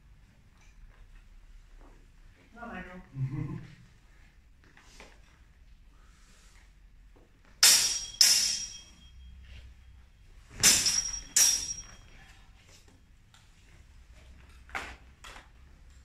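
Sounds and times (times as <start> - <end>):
sword blades clashing: 7.6 - 9.2, 10.5 - 12.2.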